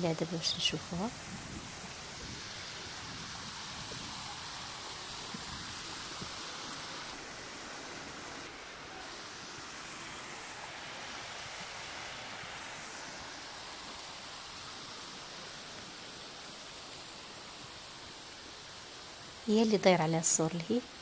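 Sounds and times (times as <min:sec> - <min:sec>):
stream running over stones: 0:00.0 - 0:21.0.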